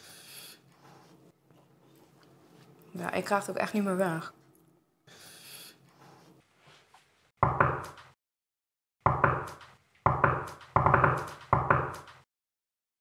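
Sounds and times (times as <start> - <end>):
knocking on a door: 7.4 - 8.2, 9.0 - 12.2.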